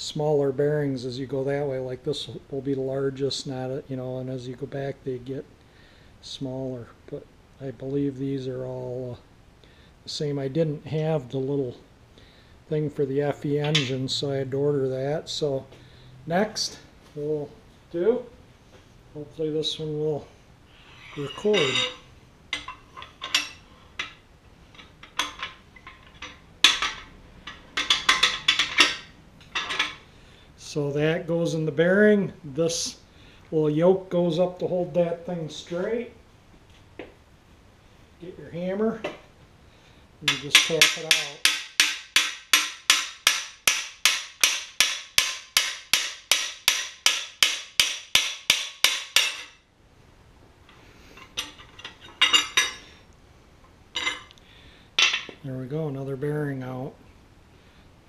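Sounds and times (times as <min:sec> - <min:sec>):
metal tool pieces clinking: 0:20.9 - 0:30.0, 0:51.1 - 0:53.0, 0:54.0 - 0:54.4, 0:55.0 - 0:55.4
hammer tapping metal bar: 0:40.3 - 0:49.6.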